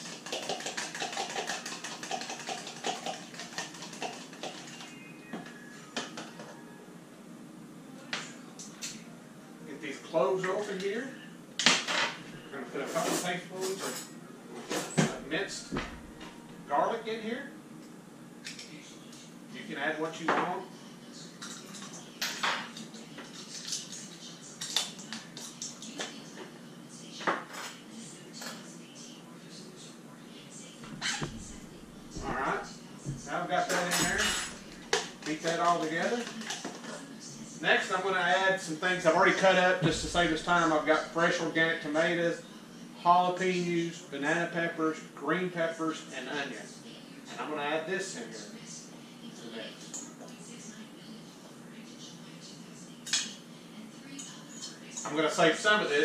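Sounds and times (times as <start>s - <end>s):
egg beaten in glass bowl: 0.0s - 4.9s
utensils and dishes clinking: 12.8s - 15.2s, 31.0s - 37.0s
kitchen items knocking: 31.0s - 35.3s, 39.8s - 41.0s.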